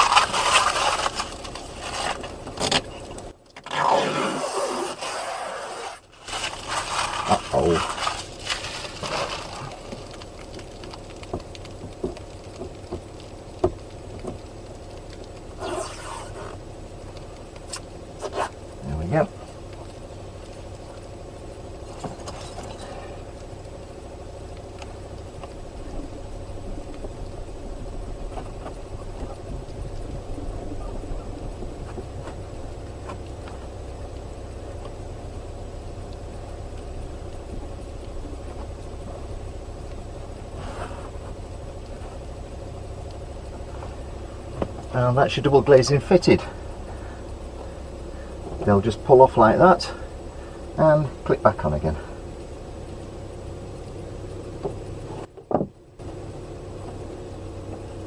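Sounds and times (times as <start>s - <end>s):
plastic film crackling and rustling: 0.0s - 3.8s, 4.5s - 48.4s
plastic film peeling crinkles: 0.0s - 3.8s, 4.5s - 18.7s
low mechanical drone: 0.0s - 58.0s.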